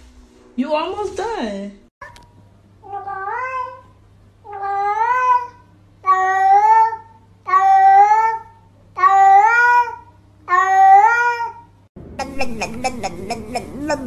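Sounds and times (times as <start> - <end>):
cat meowing: 2.8 - 3.8.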